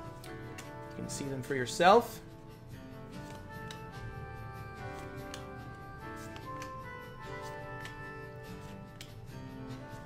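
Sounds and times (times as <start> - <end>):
cards sliding clicks: 0.0 - 1.0, 3.1 - 4.0, 4.8 - 9.3
soft background music: 0.0 - 10.0.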